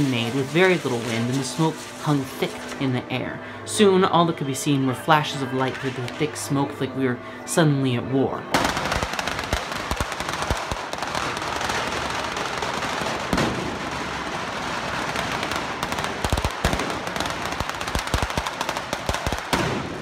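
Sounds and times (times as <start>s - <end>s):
fireworks hissing: 0.0s - 2.9s
fireworks crackling: 0.0s - 6.6s, 8.5s - 20.0s
heavy firework bangs: 8.6s - 20.0s.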